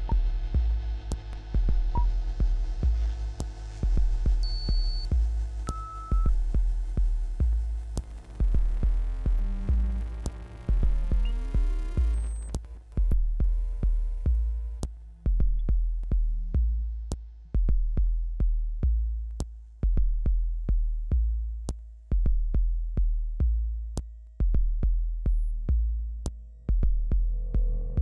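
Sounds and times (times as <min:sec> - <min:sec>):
bass kick hits: 0:05.0 - 0:12.4.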